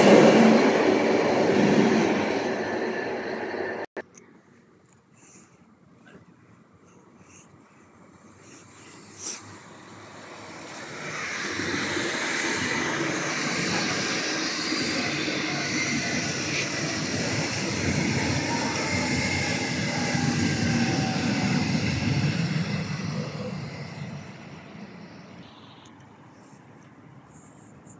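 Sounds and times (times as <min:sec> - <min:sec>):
train wheels rumbling on rails: 0:00.0 - 0:03.9, 0:09.4 - 0:25.4.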